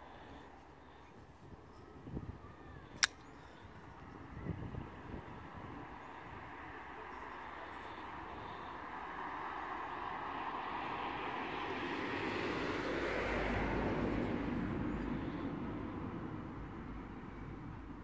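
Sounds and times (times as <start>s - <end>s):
aircraft passing overhead: 4.1s - 18.0s.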